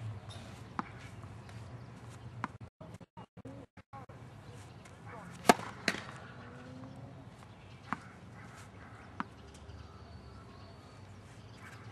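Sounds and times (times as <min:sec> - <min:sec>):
tennis ball being hit: 0:05.2 - 0:06.3, 0:07.8 - 0:09.4.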